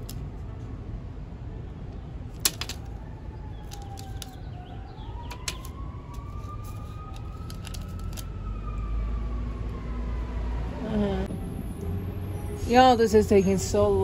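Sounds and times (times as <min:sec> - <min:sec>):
siren wailing: 0:02.8 - 0:13.5.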